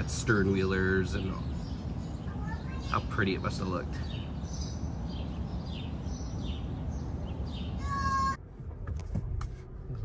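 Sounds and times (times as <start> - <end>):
birds chirping: 0.0 - 8.4
car interior hum: 5.0 - 10.0.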